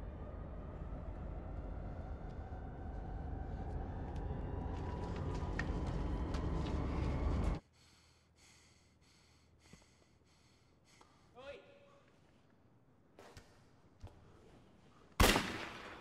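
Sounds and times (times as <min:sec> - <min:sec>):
low rumbling noise: 0:00.0 - 0:07.6.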